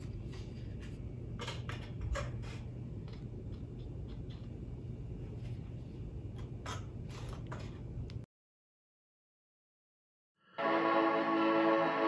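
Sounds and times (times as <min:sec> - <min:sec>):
low room hum: 0:00.0 - 0:08.3.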